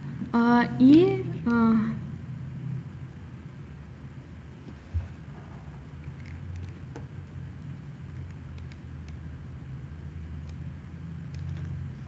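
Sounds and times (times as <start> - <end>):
low background hum: 0.0 - 12.0
faint mouse clicks: 8.1 - 9.2.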